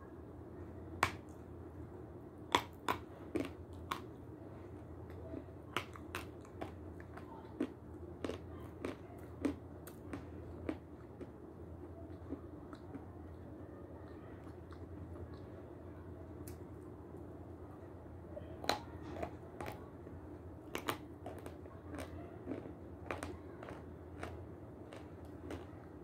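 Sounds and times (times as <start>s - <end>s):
steady low hum: 0.0s - 26.0s
chalk crunching being chewed: 2.5s - 13.4s, 20.6s - 26.0s.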